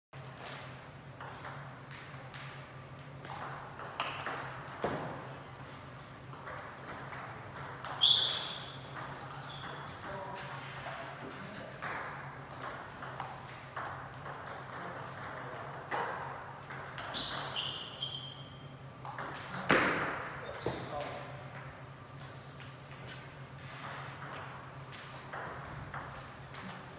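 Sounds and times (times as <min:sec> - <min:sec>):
shoes squeaking on floor: 0:07.9 - 0:10.0, 0:17.1 - 0:18.6.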